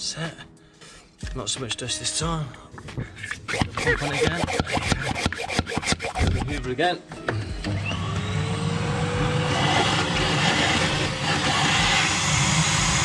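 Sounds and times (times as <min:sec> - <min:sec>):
vacuum cleaner running: 0:03.5 - 0:06.6, 0:07.2 - 0:13.0.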